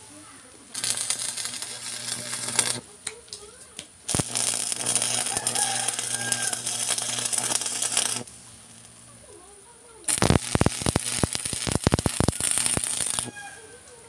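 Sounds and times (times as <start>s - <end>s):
arc welding crackling hiss: 0.0s - 14.0s
electrical hum: 0.0s - 14.0s.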